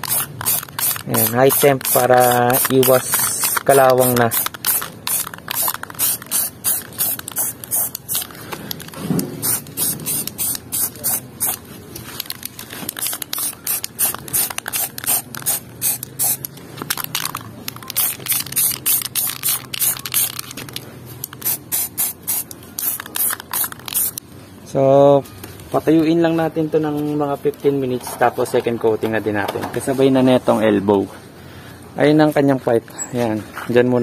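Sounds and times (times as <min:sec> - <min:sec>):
spray paint can hissing: 0:00.0 - 0:24.2.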